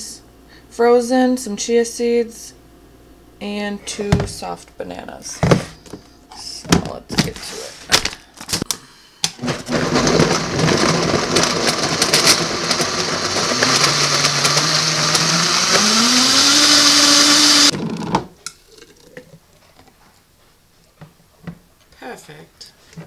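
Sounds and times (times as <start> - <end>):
blender running: 9.4 - 18.2.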